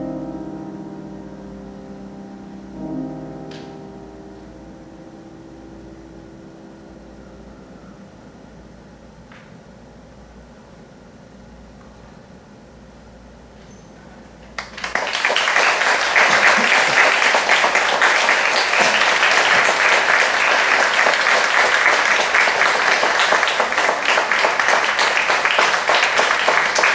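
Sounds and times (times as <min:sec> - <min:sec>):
audience applauding: 0:14.5 - 0:26.9.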